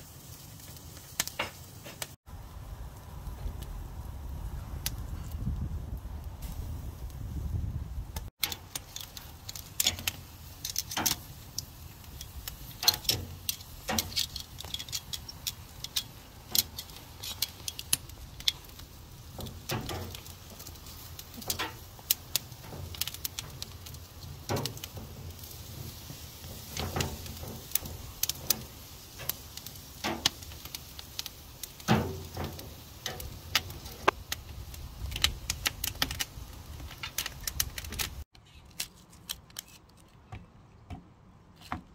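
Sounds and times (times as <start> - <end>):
wood embers crackling and popping: 0.0 - 41.0
metal tongs clinking on grate: 8.4 - 34.2.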